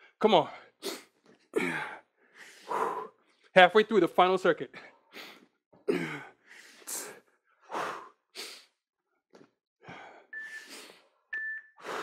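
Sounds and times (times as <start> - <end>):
hard breathing: 0.6 - 3.5, 4.7 - 8.8, 9.8 - 11.2, 11.8 - 12.0
electronic countdown beep: 10.3 - 12.0.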